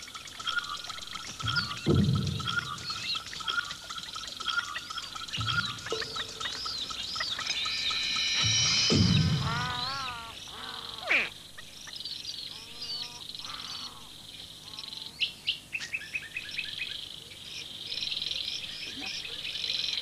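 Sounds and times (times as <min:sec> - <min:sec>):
high insect trill: 0:00.0 - 0:11.9
birds chirping and whistling: 0:00.0 - 0:14.0.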